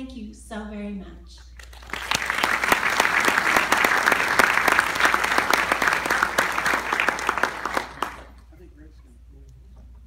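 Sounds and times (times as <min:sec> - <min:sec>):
audience applauding: 0:01.6 - 0:08.4.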